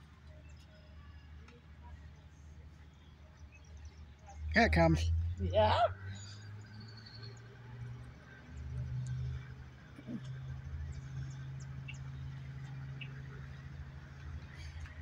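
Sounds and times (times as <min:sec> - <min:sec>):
diesel locomotive engine drone: 0:00.0 - 0:15.0.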